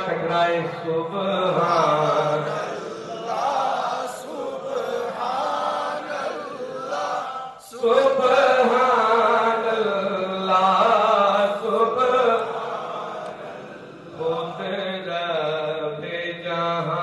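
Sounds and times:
man singing through microphone: 0.0s - 3.0s, 7.6s - 12.9s, 14.1s - 17.0s.

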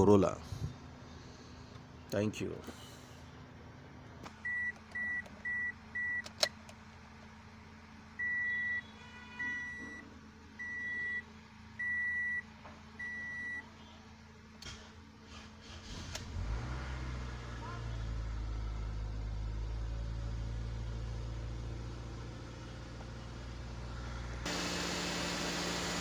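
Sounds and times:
dashboard warning chime beeping: 4.4s - 6.3s, 10.6s - 11.2s, 11.8s - 13.6s.

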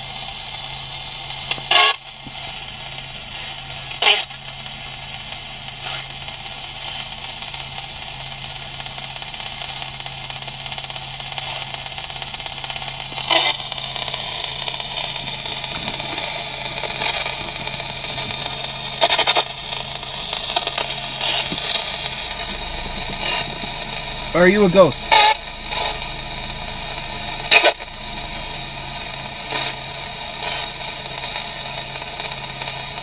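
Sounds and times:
radio static hiss: 0.8s - 33.0s
low hum: 7.2s - 33.0s
snatches of radio station audio: 13.2s - 28.4s.

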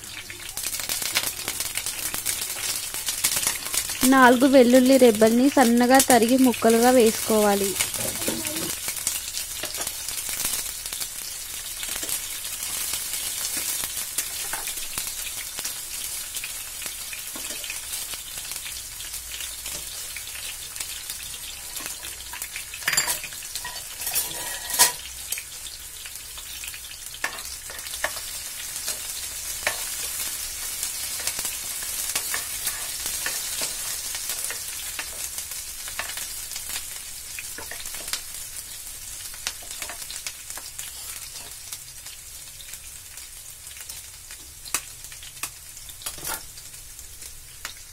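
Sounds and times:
food sizzling in hot oil: 0.0s - 47.9s
spatula stirring a pan: 6.9s - 41.8s.

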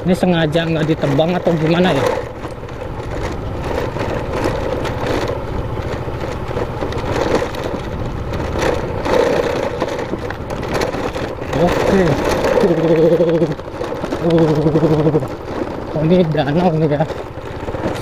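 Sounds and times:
motorcycle engine running: 0.0s - 18.0s
road noise: 0.0s - 18.0s.

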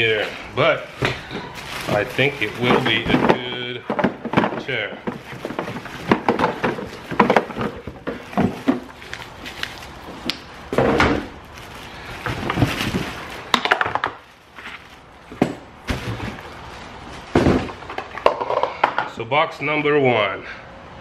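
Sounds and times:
plastic bag crinkling: 0.0s - 17.9s
parts knocking against cardboard: 1.0s - 9.6s, 12.2s - 16.5s, 17.2s - 19.1s.

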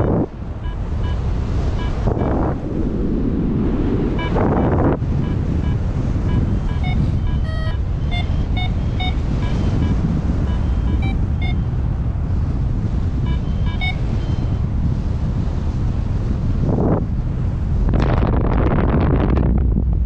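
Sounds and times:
variometer beeping: 0.0s - 2.6s, 4.1s - 12.0s, 13.0s - 14.7s
wind buffeting microphone: 0.0s - 20.0s.

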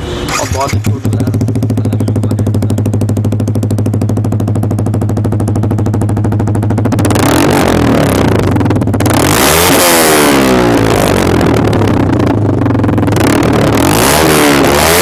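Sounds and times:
motorcycle engine idling and revving: 0.0s - 15.0s.

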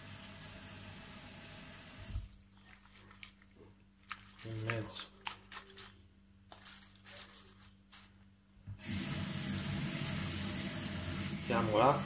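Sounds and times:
tap water running onto leaves: 1.9s - 5.9s, 8.8s - 12.0s.

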